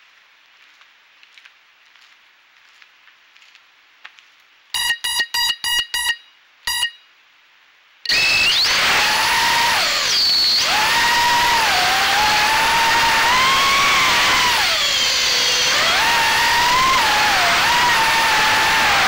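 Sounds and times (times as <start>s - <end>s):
quadcopter motors whining: 8.1s - 19.0s.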